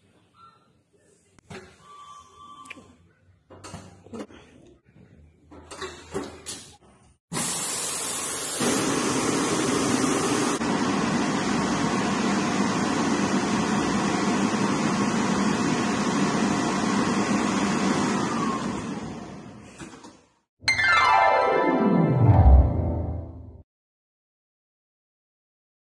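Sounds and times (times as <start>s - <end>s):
blower hissing steadily: 7.6s - 18.5s.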